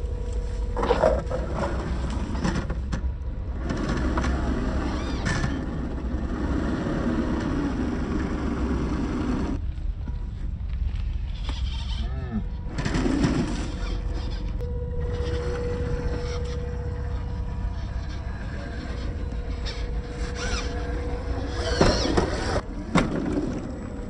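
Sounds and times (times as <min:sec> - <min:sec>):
low rumble: 0:00.0 - 0:24.0
electric toy car motor whirring: 0:03.7 - 0:09.6, 0:12.8 - 0:22.6.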